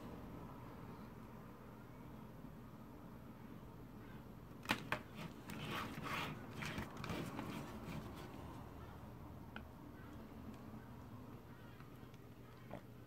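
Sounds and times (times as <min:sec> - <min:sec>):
circuit board scraping on desk: 0:05.1 - 0:08.2.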